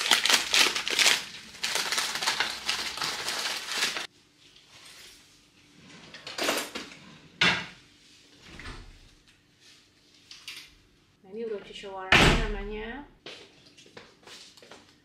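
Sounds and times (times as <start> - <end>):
food wrapping crinkling: 0.0 - 4.1.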